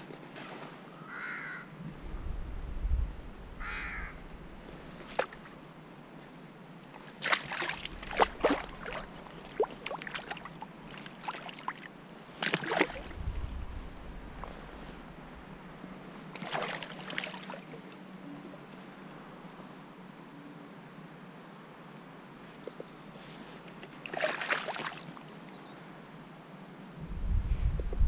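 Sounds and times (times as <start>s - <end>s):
bird calling: 3.6s - 5.4s
water splashing: 7.0s - 14.8s, 16.3s - 17.8s, 24.0s - 25.1s.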